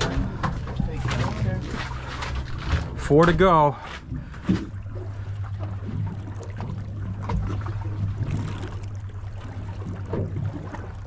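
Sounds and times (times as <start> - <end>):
outboard engines idling: 0.0 - 11.0
water lapping at hull: 0.0 - 11.0.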